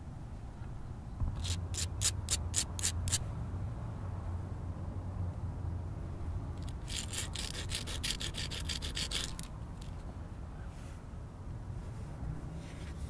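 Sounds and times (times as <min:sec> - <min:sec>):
stone scraping against stone: 0:01.4 - 0:03.2, 0:06.6 - 0:09.9.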